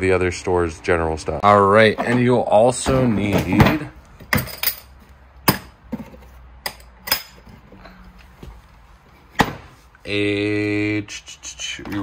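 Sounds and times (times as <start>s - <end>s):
metal latches snapping open: 6.6s - 7.4s.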